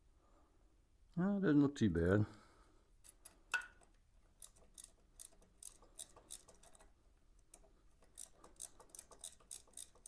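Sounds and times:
ratchet wrench clicking: 4.4s - 10.0s.

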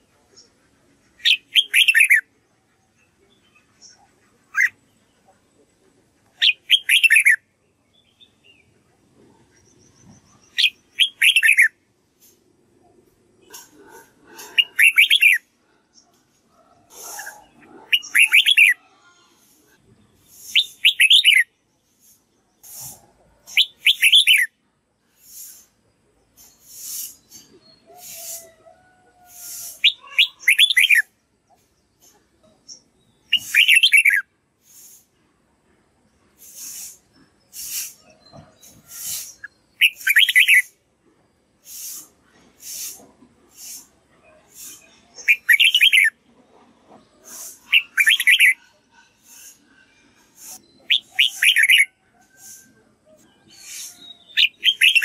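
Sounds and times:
bird singing whistled notes: 6.4s - 7.4s, 9.6s - 11.8s, 20.4s - 21.5s, 23.5s - 24.5s, 32.7s - 34.2s, 37.6s - 40.8s, 47.7s - 48.6s, 50.4s - 52.6s, 53.2s - 55.0s.

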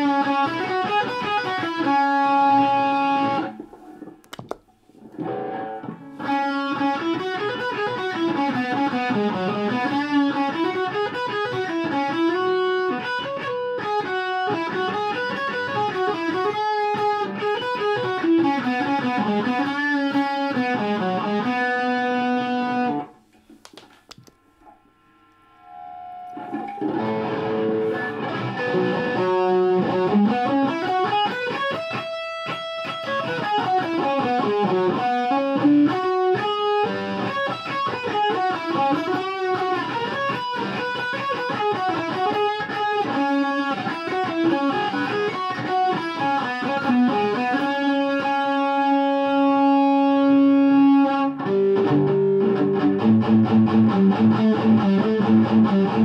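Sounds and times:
overdriven electric guitar: 0.0s - 56.0s
guitar pedal switch click: 3.6s - 5.2s.

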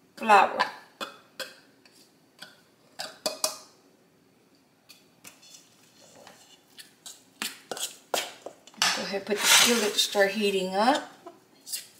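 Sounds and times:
utensil tapping bowls: 2.4s - 3.7s
fork scraping in bowl: 9.3s - 10.2s.

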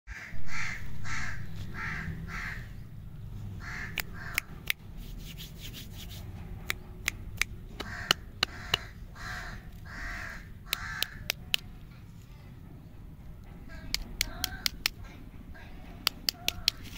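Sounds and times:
crow cawing: 0.1s - 2.8s, 3.6s - 4.5s, 7.8s - 11.4s.

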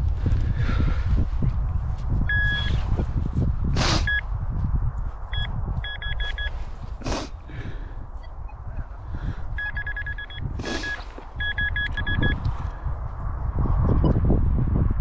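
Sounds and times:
wind rumble on microphone: 0.0s - 15.0s
two-tone electronic beeps: 2.3s - 2.8s, 5.3s - 6.6s, 9.6s - 12.4s
soil scraping: 10.6s - 11.4s.

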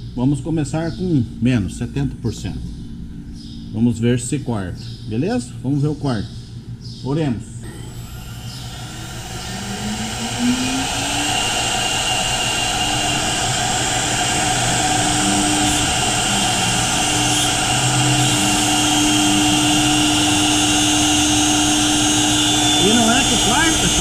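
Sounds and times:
router spindle motor whine: 7.6s - 24.0s.

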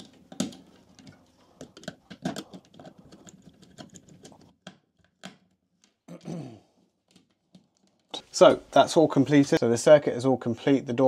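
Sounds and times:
screwdriver clicking and scraping: 0.0s - 5.9s.

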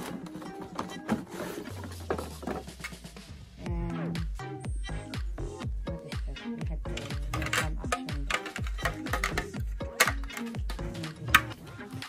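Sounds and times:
cardboard packaging rustling: 0.0s - 2.7s
background music: 0.0s - 12.0s.

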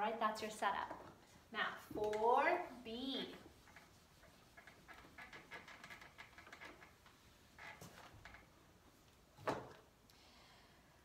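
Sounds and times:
eraser wiping whiteboard: 2.9s - 5.2s.

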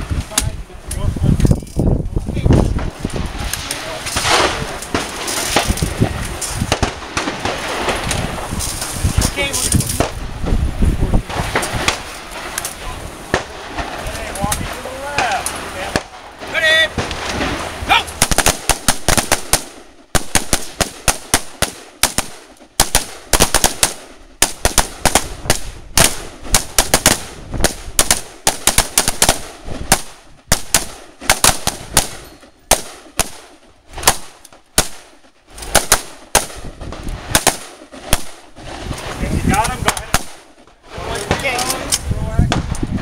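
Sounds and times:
rifle shots: 4.1s - 8.8s, 11.3s - 12.6s, 13.3s - 38.6s, 39.6s - 40.6s.

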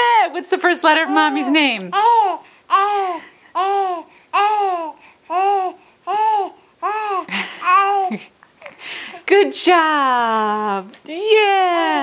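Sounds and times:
infant cooing: 0.9s - 8.8s.

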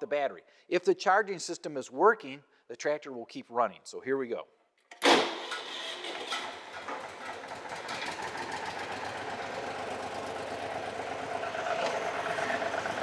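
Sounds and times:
tractor engine running: 5.1s - 13.0s.

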